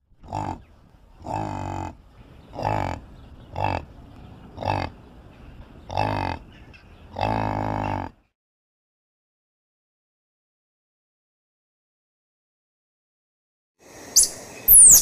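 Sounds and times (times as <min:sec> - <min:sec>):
yak grunting: 0:00.2 - 0:05.0, 0:05.8 - 0:08.3.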